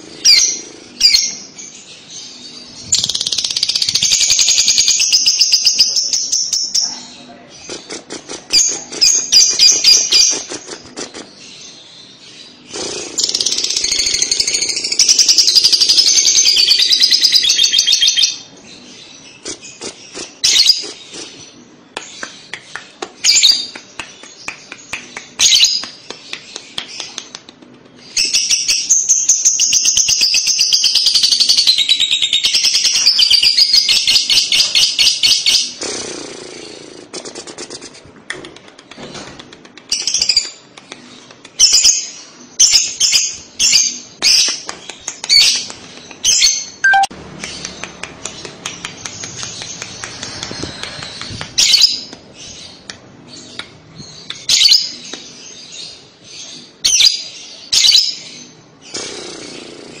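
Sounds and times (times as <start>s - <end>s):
lovebird chattering trill: 46.3s - 47.1s
lovebird sharp chirps: 46.3s - 47.7s.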